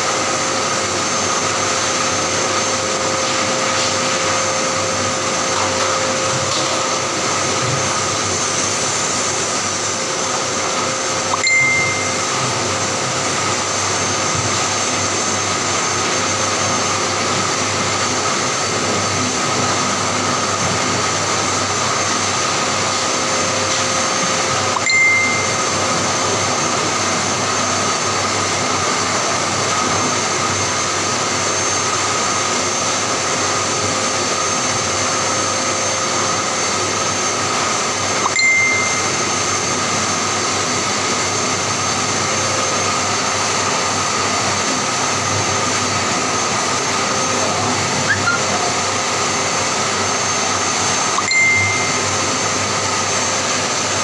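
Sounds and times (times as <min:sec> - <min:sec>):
grooming vacuum clipper running: 0:00.0 - 0:54.0
short high tones: 0:11.3 - 0:12.6, 0:24.7 - 0:26.0, 0:38.2 - 0:39.4, 0:48.0 - 0:48.8, 0:51.1 - 0:52.4.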